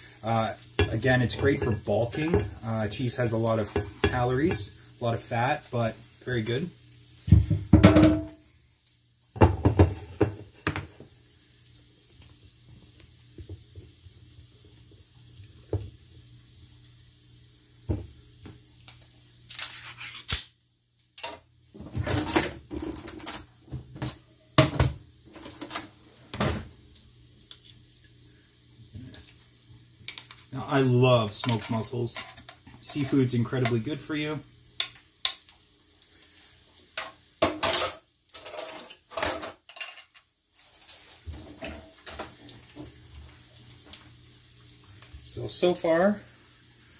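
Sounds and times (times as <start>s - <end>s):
dishes knocking on counter: 7.3s - 8.3s, 9.4s - 10.9s, 17.9s - 18.1s.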